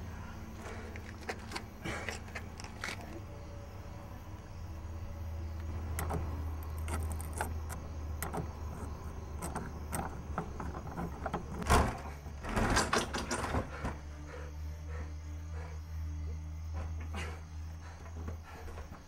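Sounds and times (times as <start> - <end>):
steady low hum: 0.0 - 19.0
door knob clicks: 5.9 - 11.8.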